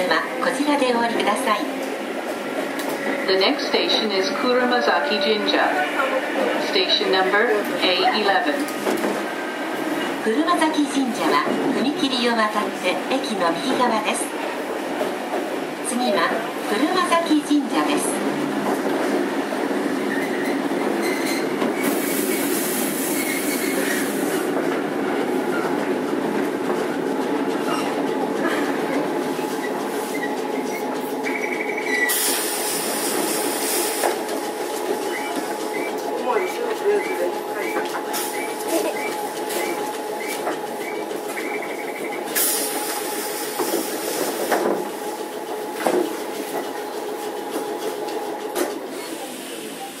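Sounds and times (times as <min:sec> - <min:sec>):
tram wheels rumbling on rails: 0:00.0 - 0:50.0.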